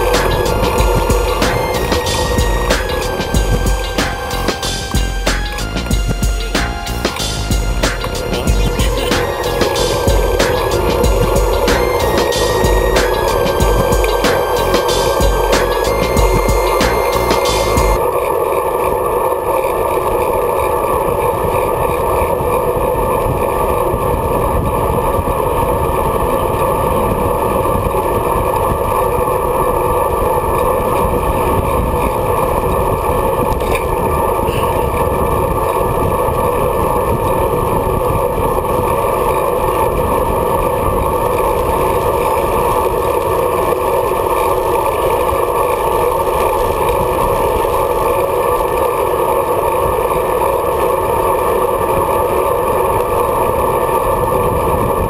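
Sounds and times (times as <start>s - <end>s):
road noise from bicycle: 18.0s - 55.0s.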